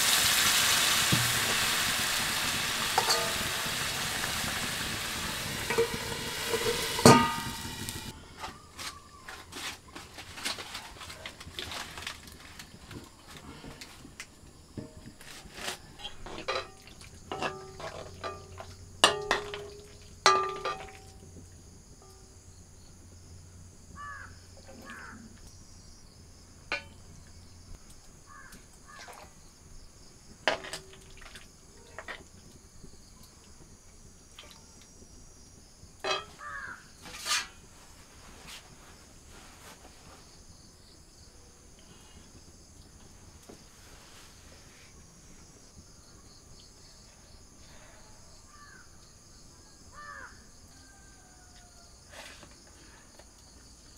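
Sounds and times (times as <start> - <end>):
metal ladle clinking on plates: 3.0 - 3.5, 5.7 - 7.7, 16.0 - 21.2, 36.0 - 36.4.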